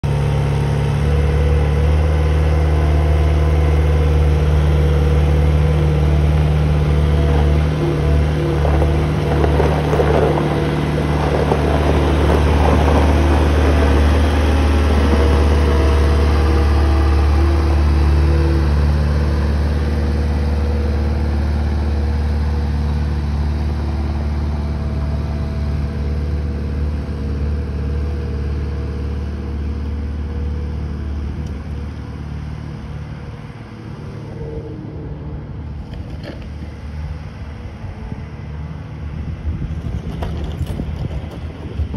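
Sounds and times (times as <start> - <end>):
diesel engine running: 0.0 - 41.9
rattling and clanking: 39.7 - 41.9.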